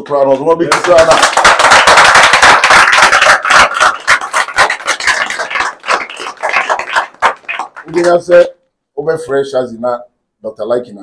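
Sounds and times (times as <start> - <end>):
crowd applauding: 0.7 - 8.2.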